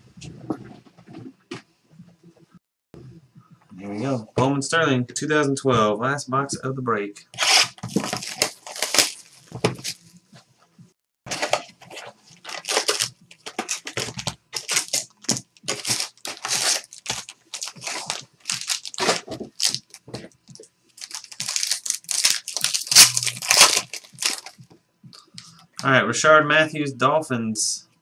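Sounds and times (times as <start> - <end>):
foil pack tearing: 7.4 - 9.3, 11.3 - 20.0, 21.0 - 24.6
plastic wrap crinkling: 7.4 - 10.1, 11.3 - 24.6.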